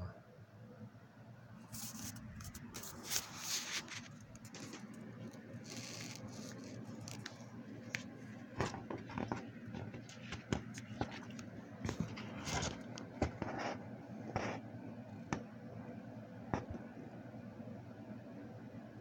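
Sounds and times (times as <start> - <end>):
low steady hum: 0.0 - 19.0
phone rustling and scraping: 1.7 - 14.7.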